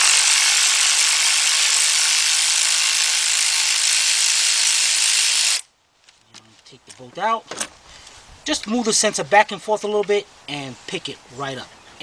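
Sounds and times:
cordless electric ratchet running: 0.0s - 5.6s.

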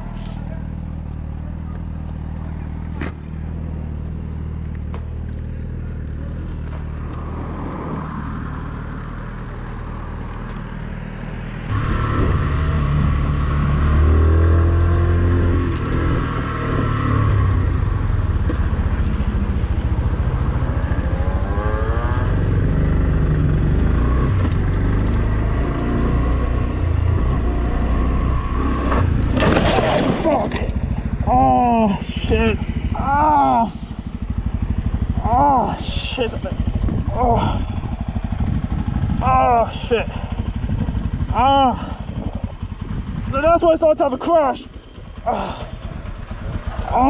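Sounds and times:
motorcycle engine idling: 0.0s - 7.1s, 17.7s - 23.9s, 30.3s - 47.0s
motorcycle engine accelerating: 11.5s - 47.0s
wind rush: 11.7s - 13.5s, 36.4s - 39.4s.

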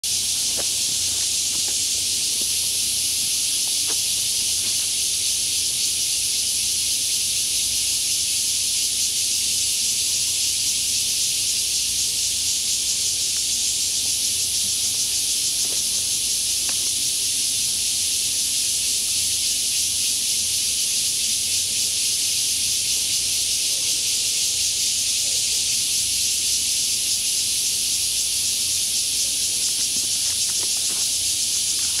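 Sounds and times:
insects chorus hissing: 0.0s - 32.0s.

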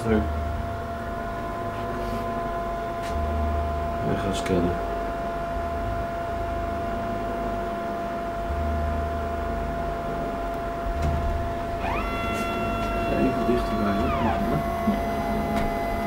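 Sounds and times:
low hum: 0.0s - 16.0s
scanner whine: 0.0s - 16.0s
motor whine rising in pitch: 11.3s - 16.0s.

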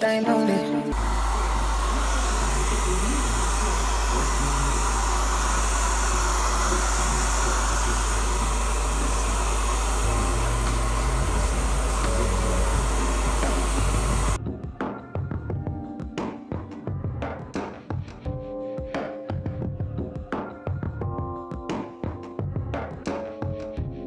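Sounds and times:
hair dryer running: 0.9s - 14.4s.

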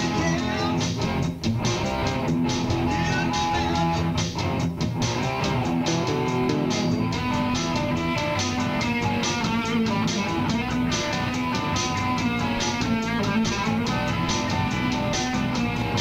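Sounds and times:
plucked bass guitar: 0.0s - 16.0s
strummed guitar: 0.0s - 16.0s.

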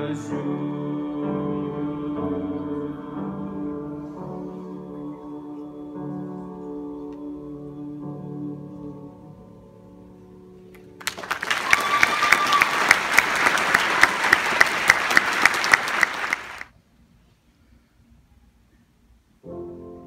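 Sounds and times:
man singing with piano: 0.0s - 9.7s
audience applause: 10.8s - 16.7s
nearby person clapping: 10.8s - 16.7s.

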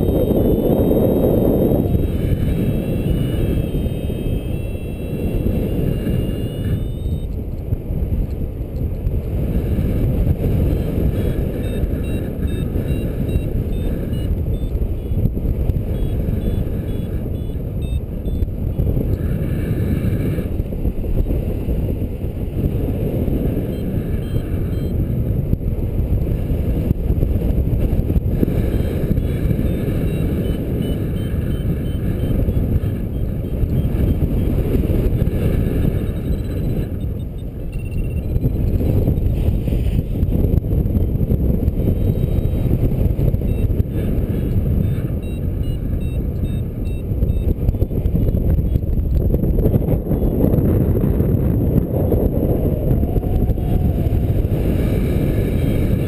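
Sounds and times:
faint high-pitched beeps: 0.0s - 7.4s, 11.1s - 15.2s, 15.9s - 18.8s, 23.6s - 25.1s, 28.6s - 39.3s, 41.9s - 42.7s, 43.4s - 48.0s
wind buffeting microphone: 0.0s - 56.0s.

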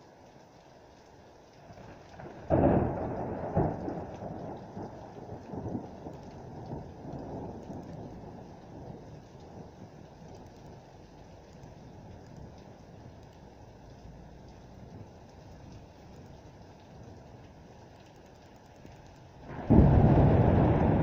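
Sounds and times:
steady rain: 0.0s - 21.0s
thunder clap and rumbling: 1.8s - 10.4s, 19.4s - 21.0s.

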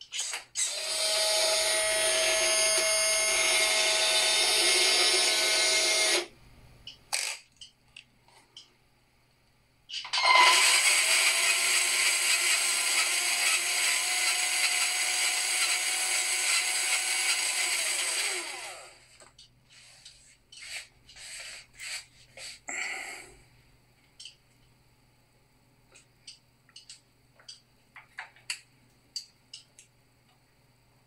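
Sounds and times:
electric motor whirring: 0.6s - 6.3s, 10.4s - 19.1s.

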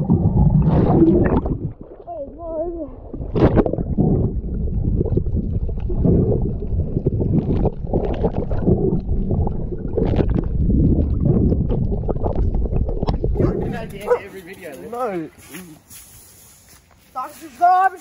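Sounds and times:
muffled underwater rumble: 0.0s - 13.9s
water gurgling: 0.0s - 14.3s.

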